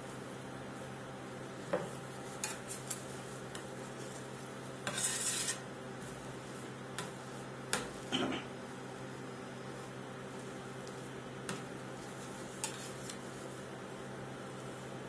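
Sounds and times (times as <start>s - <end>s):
steady low hum: 0.0s - 15.0s
metal spatula scraping steel pan: 4.8s - 5.6s.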